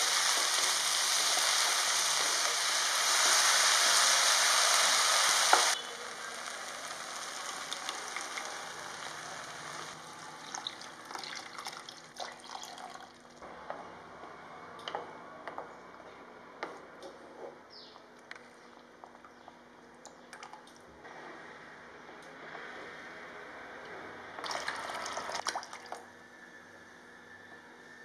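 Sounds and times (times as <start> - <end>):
food sizzling in oil: 0.0 - 11.1.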